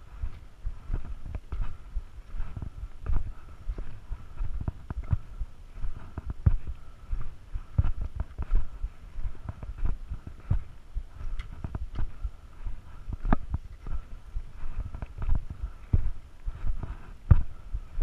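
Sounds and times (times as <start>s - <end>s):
footsteps on dirt trail: 0.0s - 18.0s
trekking poles tapping ground: 9.4s - 12.3s, 12.9s - 14.1s.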